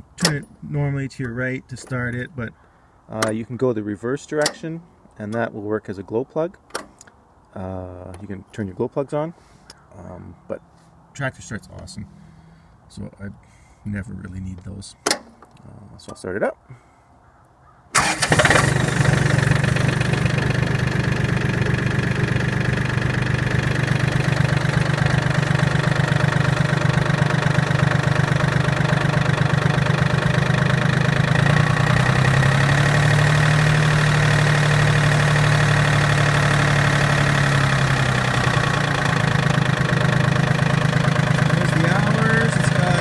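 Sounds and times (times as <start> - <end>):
diesel engine starting and idling: 11.4 - 12.8, 18.0 - 43.0.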